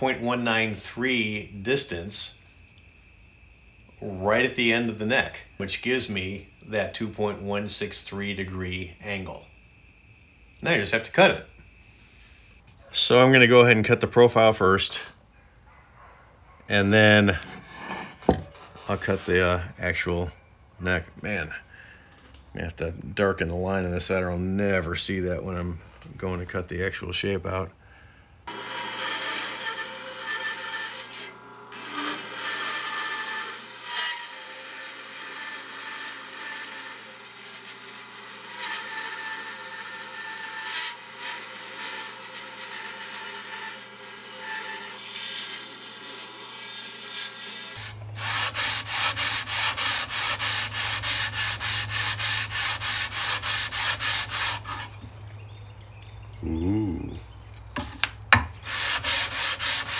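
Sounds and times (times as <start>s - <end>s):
bandsaw cutting wood: 17.4s - 18.4s, 28.5s - 55.0s, 58.6s - 59.9s
sanding beam rubbing on wood: 17.4s - 18.4s, 28.5s - 55.0s, 58.6s - 59.9s.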